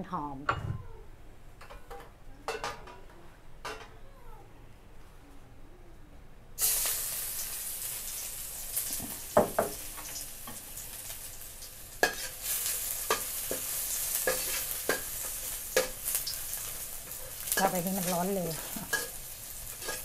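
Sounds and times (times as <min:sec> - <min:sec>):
garlic sizzling in hot oil: 0:06.6 - 0:20.0
spatula scraping a pan: 0:12.0 - 0:20.0.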